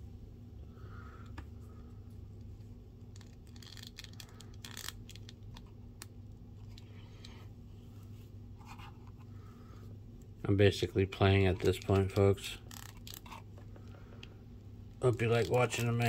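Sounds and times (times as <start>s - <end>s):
steady low hum: 0.0s - 16.0s
plastic parts clicking: 3.1s - 6.9s.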